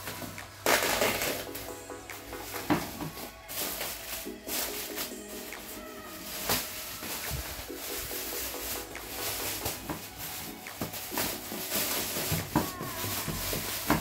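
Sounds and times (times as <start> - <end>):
plastic wrapping crinkling: 0.0 - 14.0.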